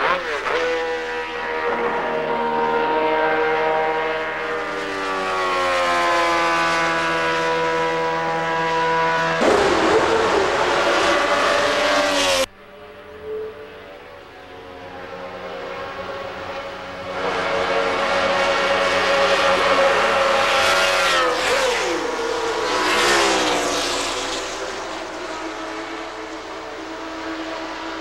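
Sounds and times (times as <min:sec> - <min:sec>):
racing car engine at high revs: 0:00.0 - 0:28.0.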